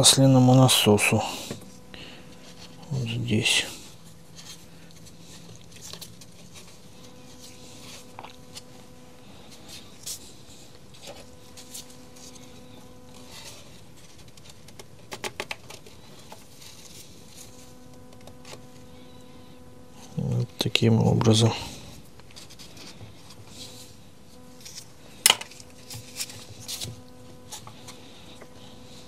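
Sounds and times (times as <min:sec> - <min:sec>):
faint steady hum: 0:00.0 - 0:29.0
small plastic parts clicking and tapping: 0:14.2 - 0:16.4.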